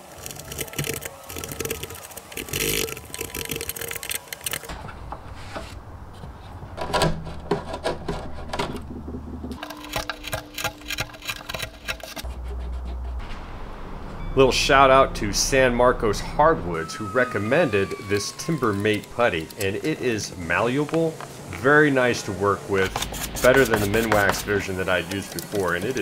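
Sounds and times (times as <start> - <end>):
chisel scraping wood: 9.6 - 13.2, 22.9 - 24.5.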